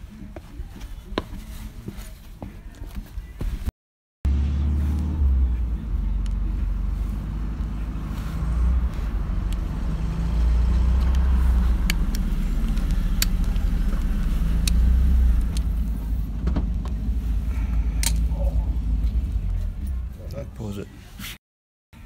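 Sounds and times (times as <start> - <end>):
steady low rumble: 4.3 - 20.6.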